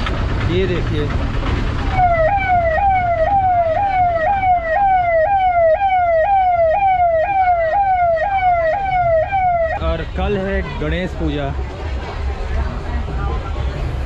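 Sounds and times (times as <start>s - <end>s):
traffic rumble: 0.0s - 14.0s
ambulance siren: 1.9s - 10.0s.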